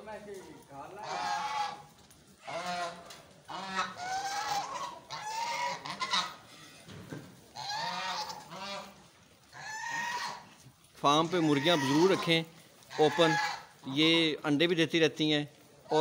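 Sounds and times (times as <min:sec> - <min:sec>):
geese honking: 0:00.8 - 0:06.8, 0:07.5 - 0:10.5, 0:11.1 - 0:14.0.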